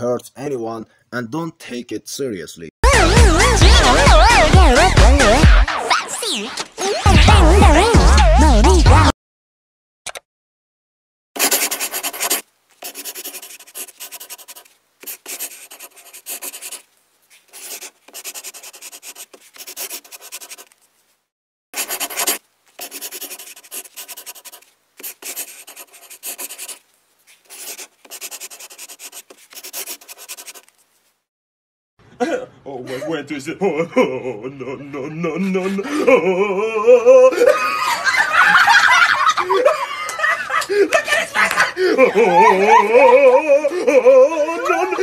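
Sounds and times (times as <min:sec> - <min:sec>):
drawing tool scribbling on paper: 0:11.4 - 0:20.8, 0:21.8 - 0:30.8.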